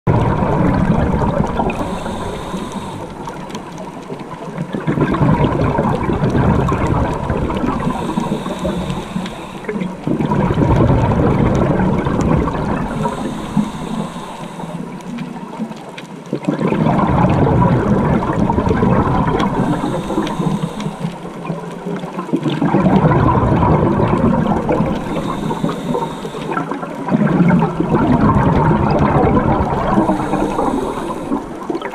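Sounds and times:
exhaled bubbles rushing: 0.1 - 31.9
diver inhaling through regulator: 1.2 - 3.9, 6.0 - 15.6, 17.0 - 22.0, 24.2 - 27.0, 28.9 - 31.9.

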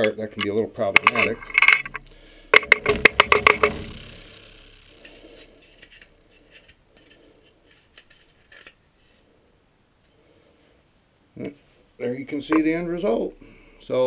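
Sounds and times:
light scrapes and clicks: 0.4 - 2.0
metal clanks: 0.9 - 5.2.

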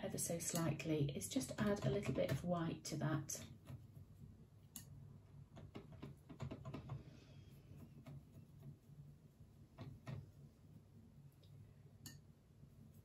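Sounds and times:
faint irregular clicks: 4.7 - 7.1
paintbrush scraping in palette: 7.4 - 11.4.

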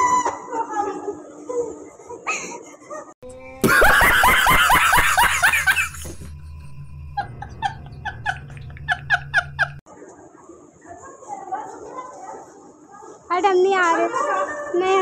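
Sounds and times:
man laughing hard: 3.6 - 6.1, 7.2 - 9.8.

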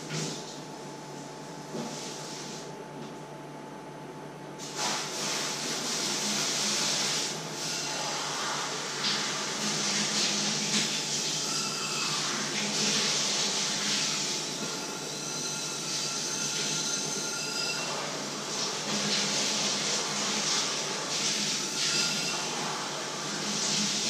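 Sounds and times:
high kettle whistle: 11.4 - 12.3, 14.5 - 18.0.

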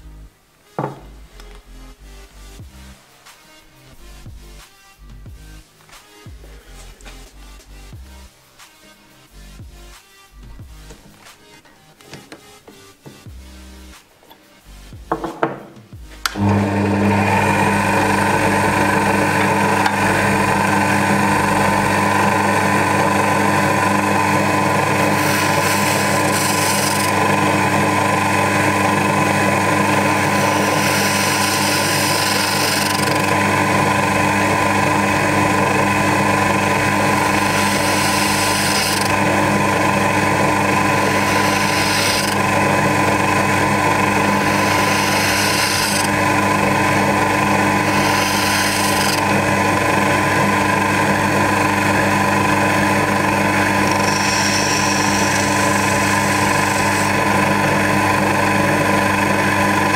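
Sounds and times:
lathe motor hum: 16.2 - 59.9
screwdriver scraping metal: 25.1 - 27.2, 30.2 - 33.4, 37.1 - 39.2, 41.0 - 42.5, 44.4 - 46.2, 47.8 - 49.3, 53.6 - 57.1.

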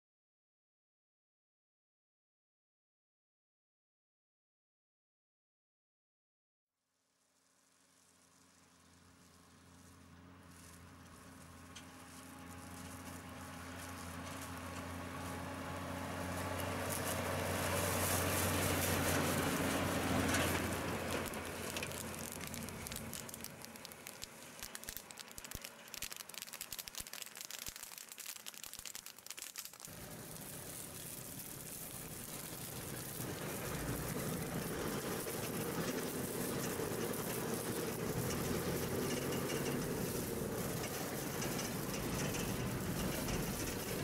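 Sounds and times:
crackling of burning chaff: 7.3 - 44.0
truck engine passing: 8.3 - 44.0
steady hiss: 20.2 - 44.0.

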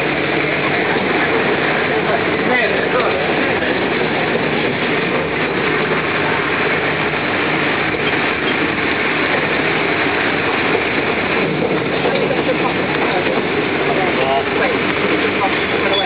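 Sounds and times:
road train engine and wheel noise: 0.0 - 16.0.

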